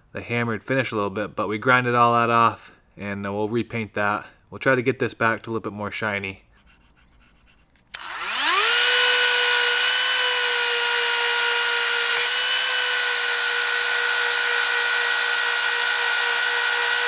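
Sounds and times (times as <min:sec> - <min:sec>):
rotary tool whining: 0:07.8 - 0:17.0.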